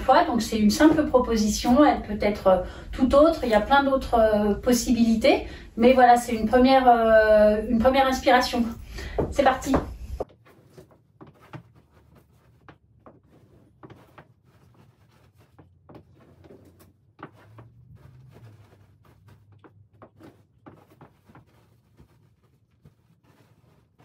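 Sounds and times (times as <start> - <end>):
fabric rustling: 8.3 - 24.0.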